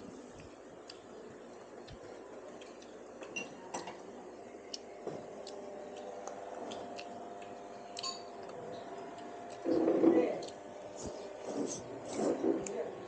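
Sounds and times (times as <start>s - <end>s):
low room hum: 0.0s - 13.0s
utensils clinking against bowls: 8.0s - 8.6s.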